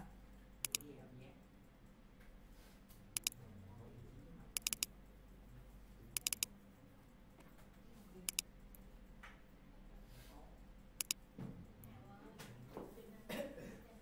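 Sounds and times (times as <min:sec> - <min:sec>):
low steady hum: 0:00.0 - 0:12.7
mouse buttons clicking: 0:00.6 - 0:00.9, 0:03.1 - 0:03.4, 0:04.5 - 0:04.9, 0:06.1 - 0:06.5, 0:08.2 - 0:08.5, 0:11.0 - 0:11.2.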